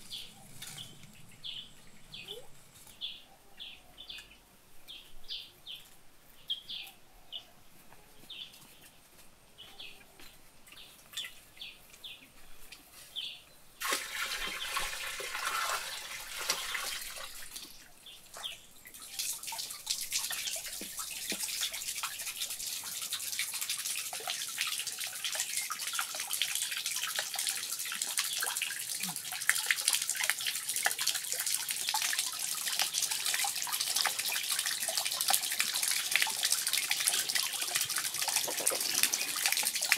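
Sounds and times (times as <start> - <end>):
water pouring into pond: 0.0 - 3.0, 13.8 - 39.9
birds chirping: 0.0 - 7.6.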